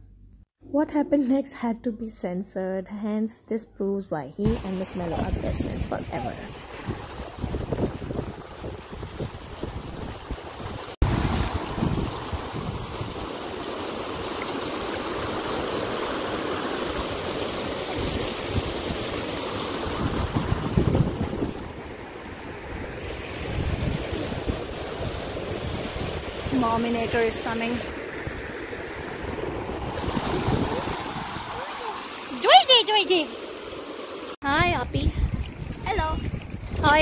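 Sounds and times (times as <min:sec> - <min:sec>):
wind buffeting microphone: 0:04.5 - 0:13.4, 0:17.9 - 0:31.7, 0:34.5 - 0:37.0
stream water rushing over rocks: 0:04.5 - 0:22.2, 0:23.0 - 0:34.4.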